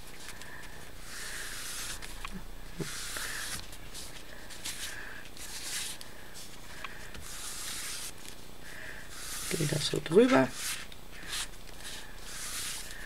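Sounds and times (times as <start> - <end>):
ink pad swishing on paper: 7.2 - 8.2, 9.1 - 13.0.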